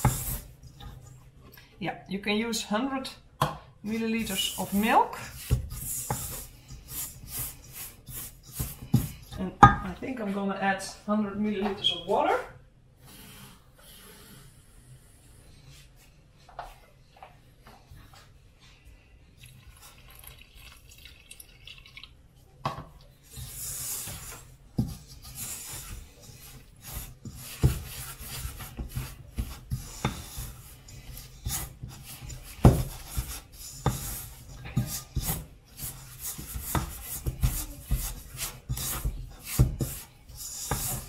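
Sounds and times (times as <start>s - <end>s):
wooden spoon stirring dough in bowl: 0.0s - 12.4s, 22.7s - 41.0s
water pouring: 19.4s - 22.2s.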